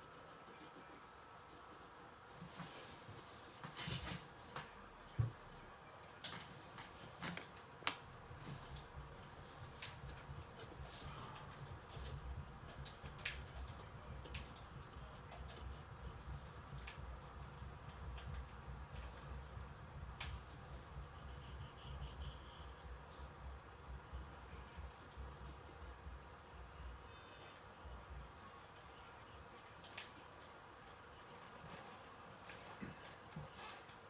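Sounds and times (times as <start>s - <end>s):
pencil scratching on paper: 0.0s - 2.4s, 8.4s - 16.6s, 20.4s - 31.9s.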